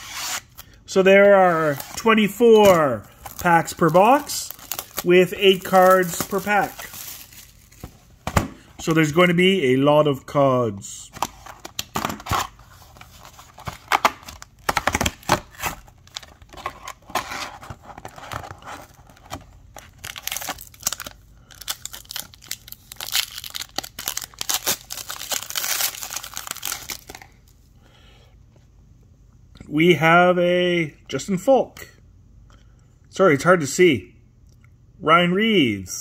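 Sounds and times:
wrapper crinkling and tearing: 1.5s - 8.0s, 18.0s - 27.4s.

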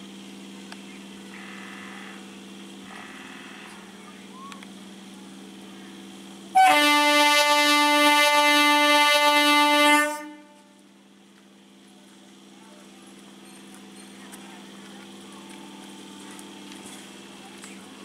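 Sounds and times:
train horn blast: 6.5s - 10.7s.

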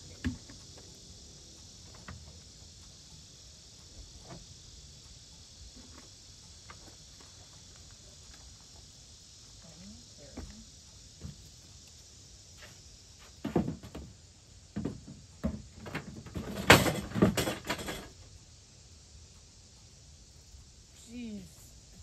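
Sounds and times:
insect chorus: 0.0s - 22.0s
trash can set down on gravel: 13.4s - 14.1s, 14.8s - 18.1s
wooden shed doors opening: 14.8s - 18.2s.

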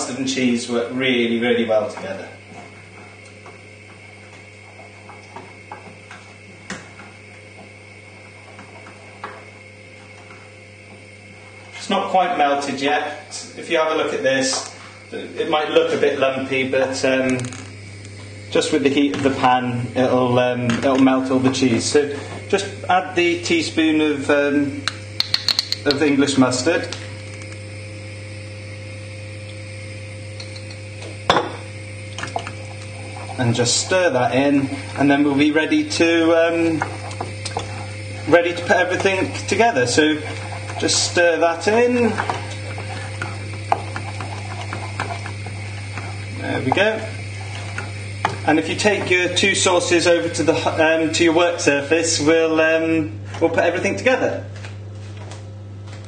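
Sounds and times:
steady low hum: 0.0s - 56.0s
utensil knocking saucepan: 25.2s - 26.0s
whisk tapping pan: 32.3s - 50.8s
whisk stirring sauce: 32.7s - 50.9s.

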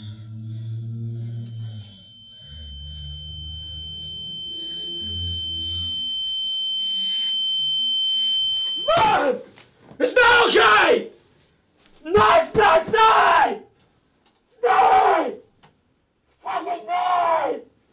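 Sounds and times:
low drone: 0.0s - 8.0s
high electronic tone: 0.0s - 9.0s.

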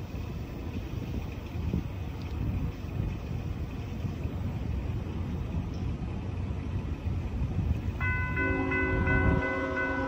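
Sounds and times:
train horn chord: 8.1s - 10.0s.

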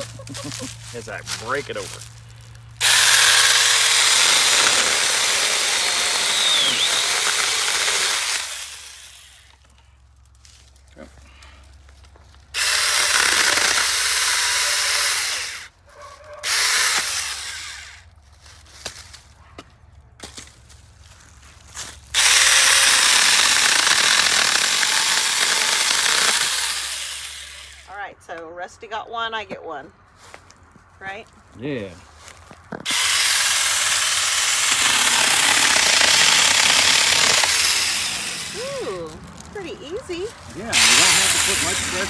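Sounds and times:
electric chainsaw cutting wood: 2.8s - 9.6s, 12.5s - 15.7s, 16.4s - 18.0s, 22.1s - 27.9s, 32.8s - 39.1s, 40.6s - 42.0s.

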